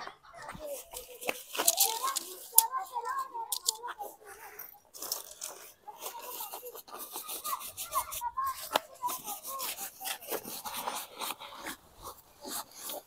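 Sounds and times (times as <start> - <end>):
tarp rustling and scraping on stone: 0.6 - 6.4.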